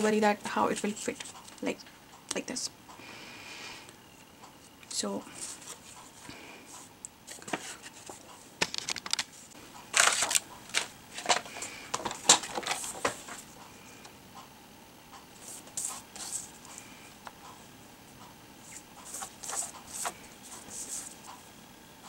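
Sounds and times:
paper rustling: 7.3 - 13.4, 18.7 - 21.2.

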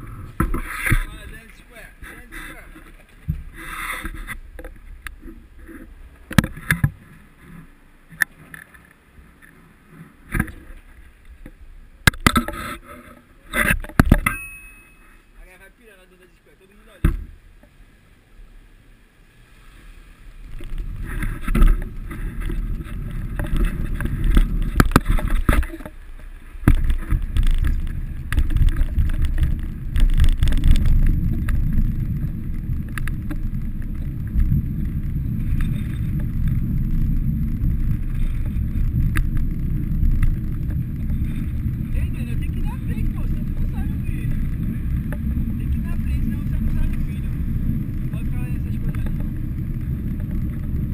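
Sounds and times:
wind buffeting microphone: 20.4 - 50.9
bicycle clicks and rattles: 20.6 - 48.1.

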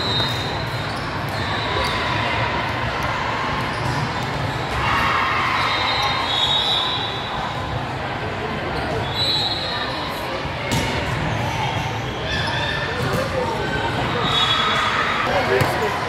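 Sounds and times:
sneakers squeaking on court: 0.0 - 2.0, 3.7 - 4.6, 15.4 - 15.9
volleyball hits echoing: 15.4 - 16.0.

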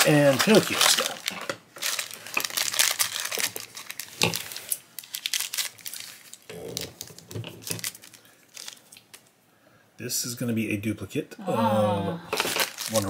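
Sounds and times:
foil pouch crinkling and tearing: 0.0 - 9.1, 12.4 - 13.0.

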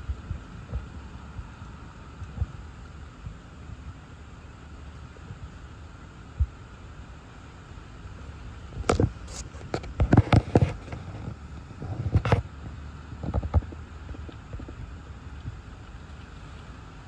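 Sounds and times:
storm wind rumble inside car: 0.0 - 4.1, 8.2 - 16.8.

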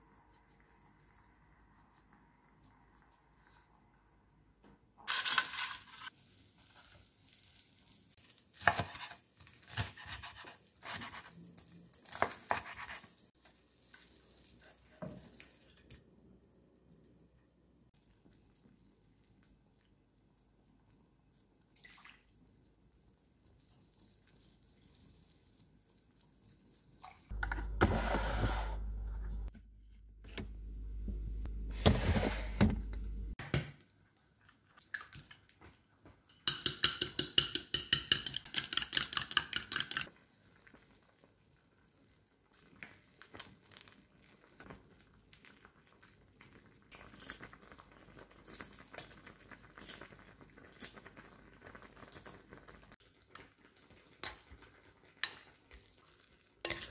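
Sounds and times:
refrigerator opened and rummaged: 31.7 - 33.1.

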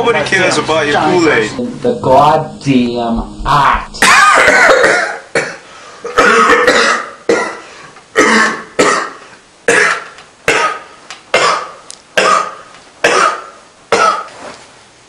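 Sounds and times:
man coughing hard: 4.0 - 14.3.

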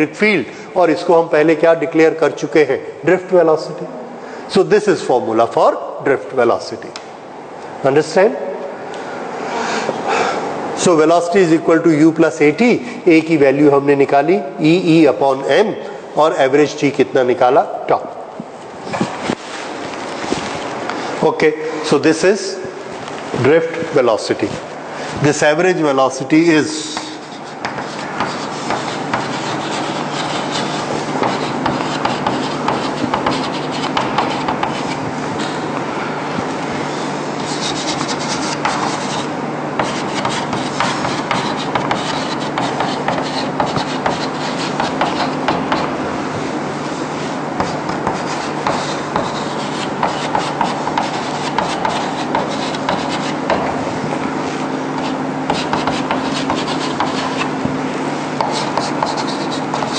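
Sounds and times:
chalk scratching on chalkboard: 26.8 - 35.6, 37.4 - 45.9, 47.6 - 53.6, 55.0 - 57.5, 58.4 - 59.9.

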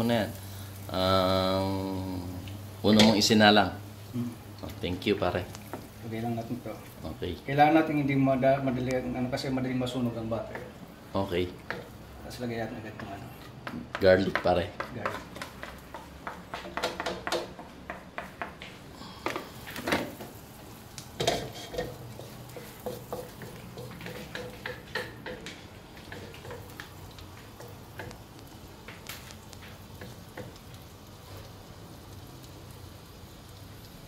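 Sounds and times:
garlic sizzling in butter: 0.0 - 17.7, 19.3 - 34.0
wooden spatula scraping a wok: 21.2 - 26.8.

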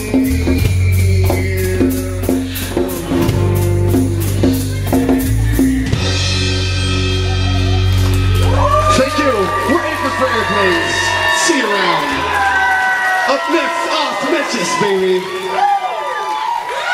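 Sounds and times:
acoustic band playing: 0.0 - 12.7.

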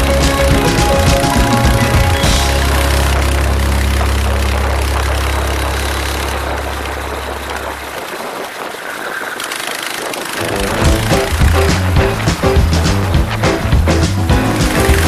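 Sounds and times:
steady low drone: 0.0 - 9.1, 10.4 - 15.0
kart engine: 0.0 - 15.0
wind noise: 0.0 - 15.0.

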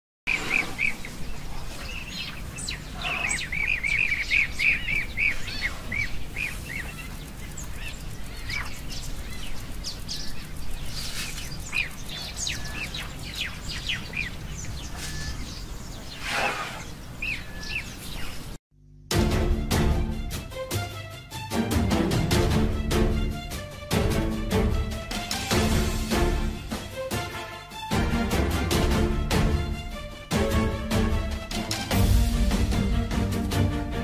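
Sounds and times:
birds chirping: 0.3 - 18.6.

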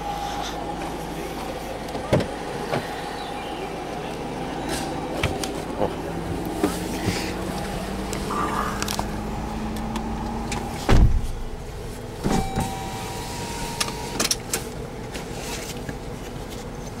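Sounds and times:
low engine hum: 0.0 - 17.0
heavy low thump: 10.8 - 12.4.

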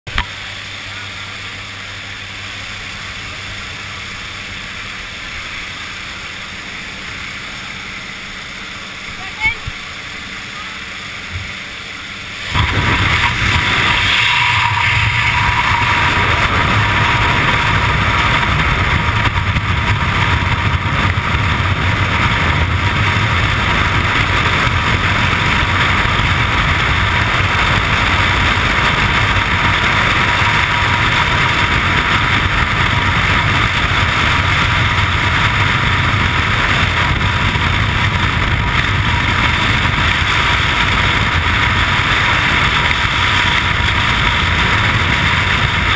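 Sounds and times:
wind rushing over microphone: 11.1 - 45.9.

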